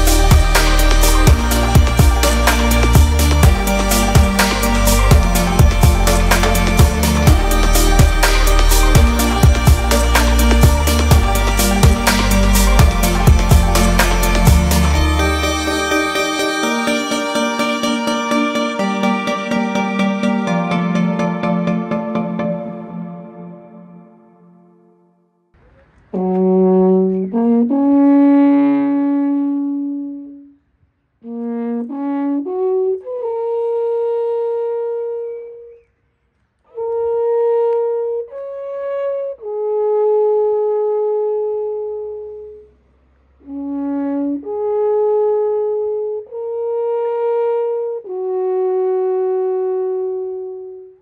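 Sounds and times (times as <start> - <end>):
alphorn long held notes: 0.0 - 25.1.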